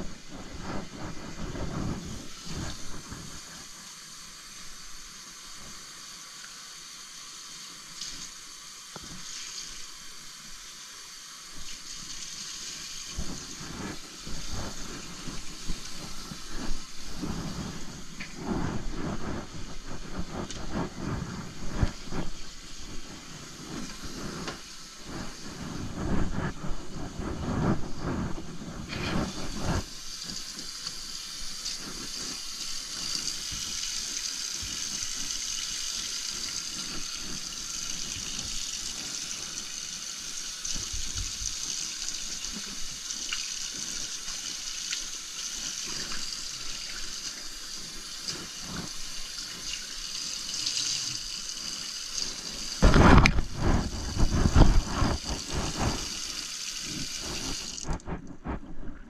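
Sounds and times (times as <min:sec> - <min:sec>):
rag rinsed under water: 0:11.6 - 0:59.0
rag rubbing wet tile floor: 0:12.7 - 0:33.8, 0:51.6 - 0:58.6.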